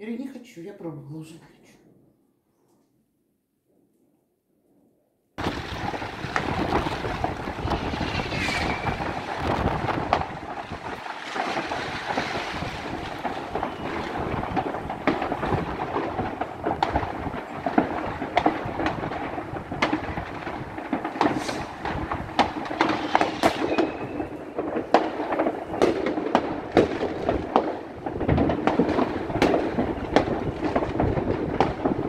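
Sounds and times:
distant fireworks bangs and crackles: 0:05.4 - 0:32.0
firework pops: 0:05.4 - 0:32.0
firework whistle: 0:07.5 - 0:10.0, 0:11.1 - 0:14.7, 0:21.2 - 0:21.8, 0:22.9 - 0:24.7.

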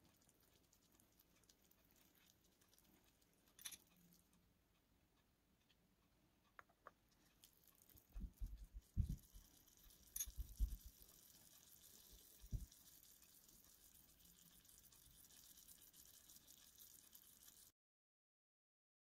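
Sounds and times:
faint steady hiss: 0:00.0 - 0:17.7
soft low thumps: 0:08.1 - 0:09.2.

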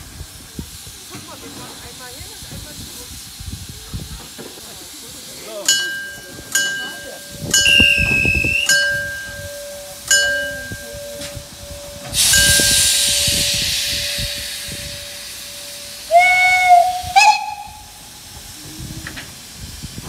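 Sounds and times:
steam hissing: 0:00.0 - 0:20.0
thin whistling tone: 0:07.4 - 0:17.6
short whistle toots: 0:07.6 - 0:08.9.

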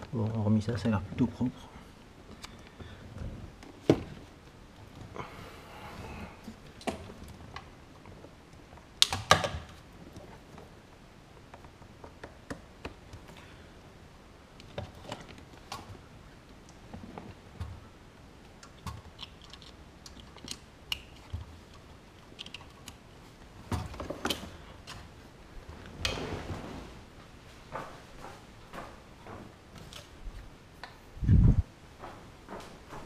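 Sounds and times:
plastic connectors clicking and rattling: 0:18.6 - 0:23.0.

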